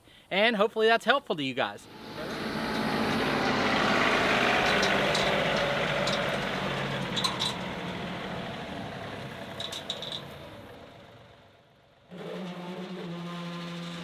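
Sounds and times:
tractor diesel engine running: 1.8s - 11.7s.

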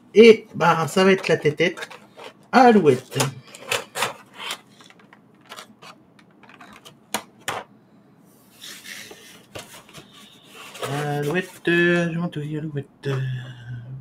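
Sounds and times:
plastic clicks and crackles: 3.1s - 7.6s.

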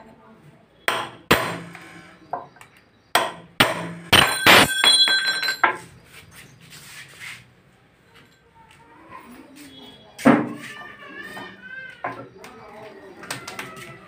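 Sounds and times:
hammer striking steel chisel: 0.9s - 1.8s.

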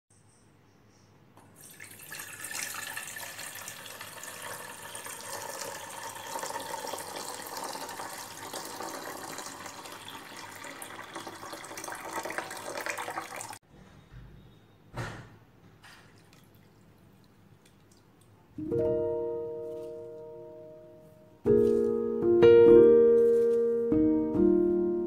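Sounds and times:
water pouring into metal pot: 1.5s - 13.6s.

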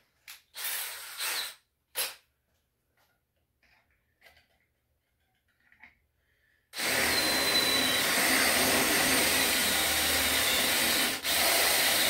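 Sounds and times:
cordless drill cutting through steel: 0.6s - 1.6s, 6.8s - 12.0s.

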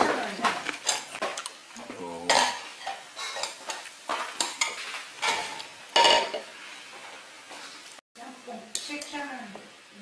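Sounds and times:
utensils scraping cookware: 2.4s - 6.6s.

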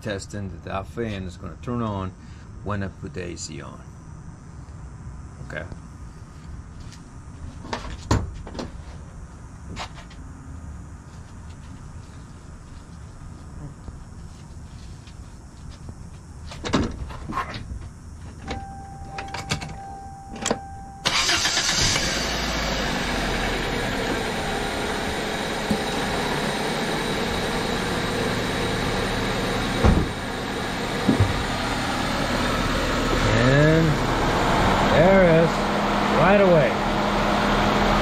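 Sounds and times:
short steady tone: 18.5s - 21.1s, 25.6s - 27.0s
car engine running: 20.6s - 38.0s
knocks: 29.8s - 30.2s, 31.0s - 31.5s.

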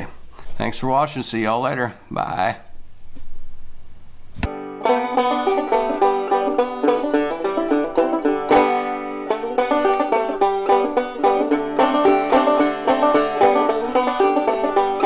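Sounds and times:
banjo picking: 4.5s - 15.0s.

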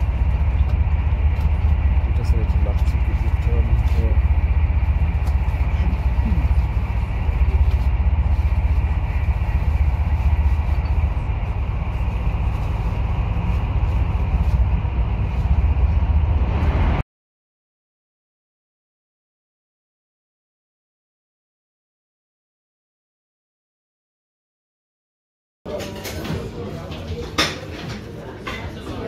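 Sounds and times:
train rumbling from inside carriage: 0.0s - 17.0s.

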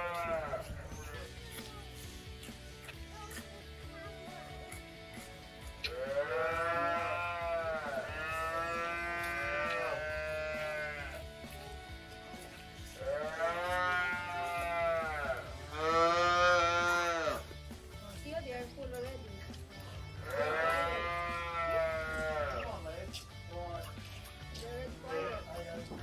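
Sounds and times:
calves mooing: 0.0s - 1.3s, 5.8s - 11.3s, 12.9s - 17.5s, 20.2s - 22.7s.

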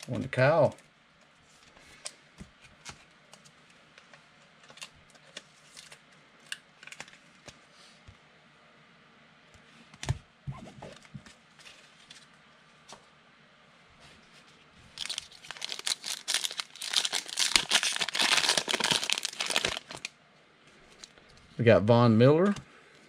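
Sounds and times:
foil pack crinkling and tearing: 0.0s - 0.8s, 15.0s - 20.1s.

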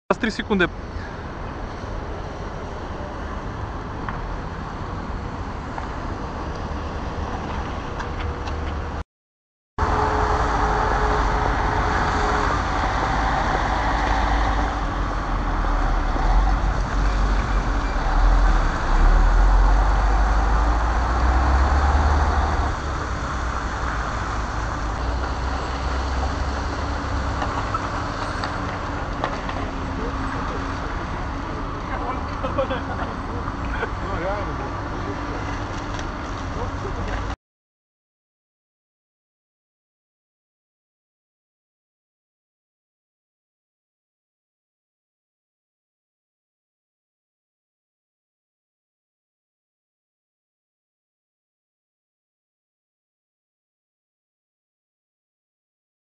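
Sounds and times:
street traffic: 0.1s - 9.0s, 9.8s - 37.4s
heavy diesel machinery rumbling: 9.8s - 37.4s.

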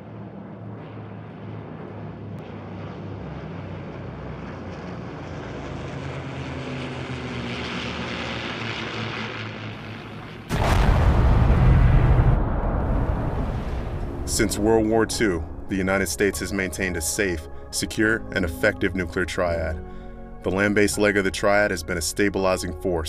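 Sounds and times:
propeller aircraft engines droning: 0.0s - 11.0s, 13.0s - 23.0s
loud rumble: 9.4s - 17.7s.

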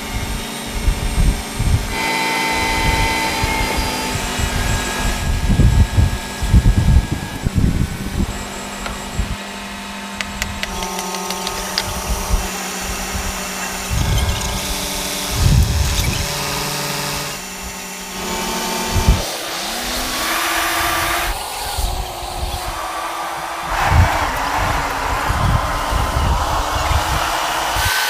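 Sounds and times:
heavy machinery whine: 0.0s - 28.0s
low rumbles: 4.1s - 9.4s.

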